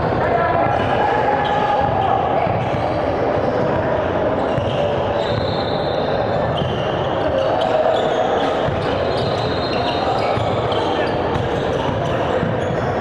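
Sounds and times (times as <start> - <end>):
sneaker squeaks: 1.3 - 13.0.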